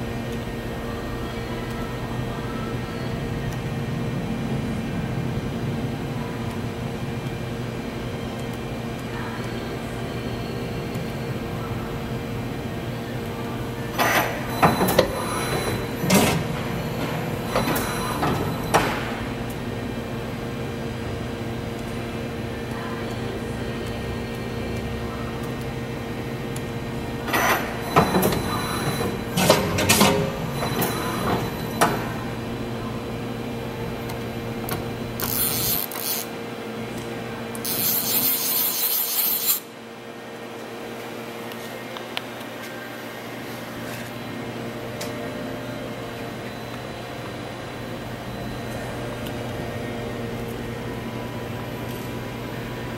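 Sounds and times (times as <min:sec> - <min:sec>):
machine humming: 0:00.0 - 0:40.4
mechanical clunks: 0:14.0 - 0:19.3, 0:27.3 - 0:32.2.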